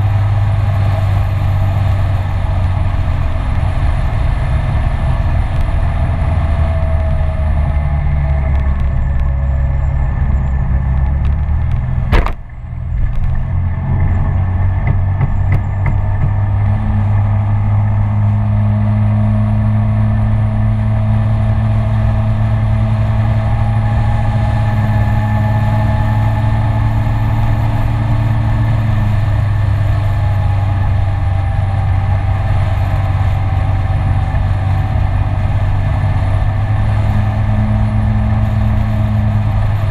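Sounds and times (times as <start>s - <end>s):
scooter engine running: 0.0s - 18.6s
wind rushing over microphone: 0.0s - 39.9s
sharp knock: 12.1s - 12.5s, 14.8s - 16.4s.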